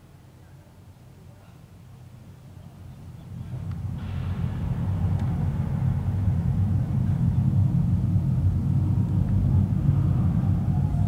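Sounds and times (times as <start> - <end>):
distant jet engines rumbling: 2.5 - 11.0.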